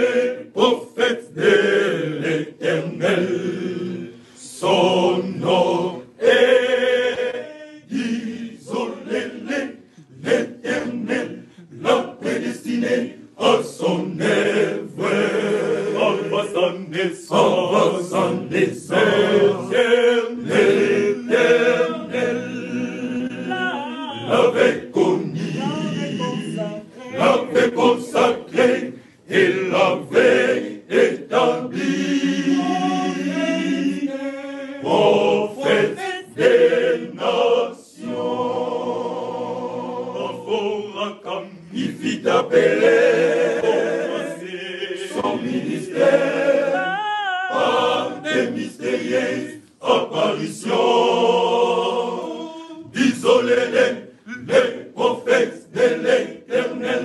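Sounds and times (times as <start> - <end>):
male choir singing a hymn: 0.0 - 57.0.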